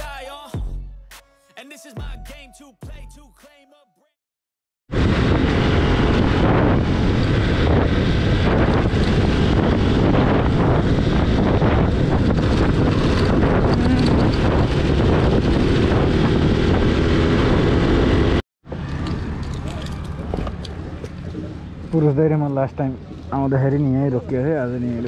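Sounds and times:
wind buffeting microphone: 0:04.9 - 0:23.6
motorcycle engine and road noise: 0:04.9 - 0:25.0.

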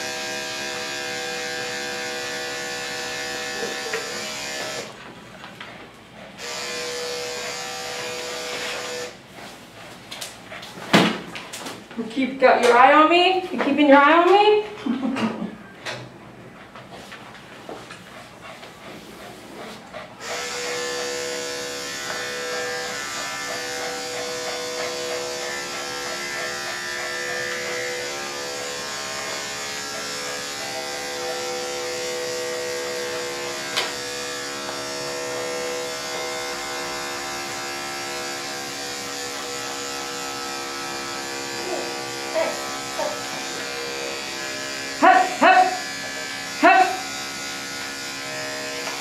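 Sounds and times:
electric clippers buzzing: 0:00.0 - 0:05.0, 0:06.4 - 0:09.2, 0:20.2 - 0:49.0.

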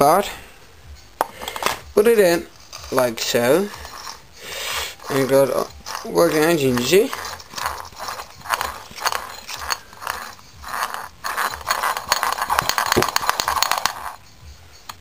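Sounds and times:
gears clicking and rattling: 0:04.9 - 0:14.3.

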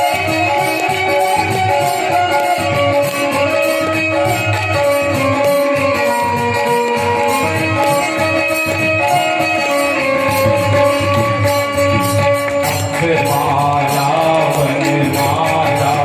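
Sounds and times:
harmonium held notes: 0:00.0 - 0:16.0
steady percussion beat: 0:00.0 - 0:16.0
person singing: 0:12.8 - 0:16.0.

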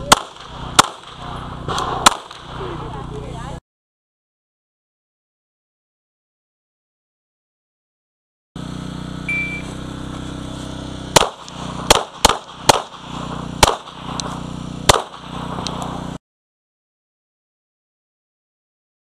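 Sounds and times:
pistol shots: 0:00.0 - 0:02.6, 0:11.1 - 0:16.1
low hum: 0:00.0 - 0:03.6, 0:08.6 - 0:16.2
shot timer beep: 0:09.3 - 0:09.8.

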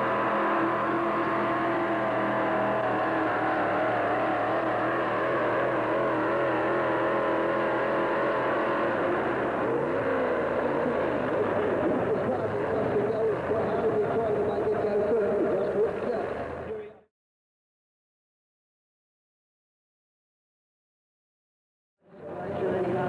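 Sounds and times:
engine revving: 0:00.0 - 0:16.8.

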